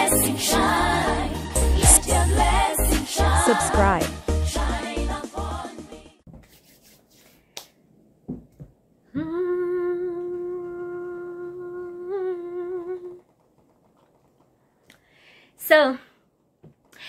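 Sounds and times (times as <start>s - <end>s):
woman humming: 9.1s - 13.3s.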